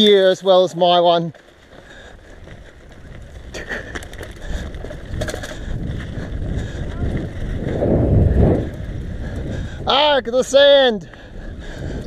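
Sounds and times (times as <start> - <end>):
bike tyres rumbling on dirt: 0.0 - 12.0
wind buffeting microphone: 1.6 - 12.0
clicks and rattles: 3.6 - 5.7.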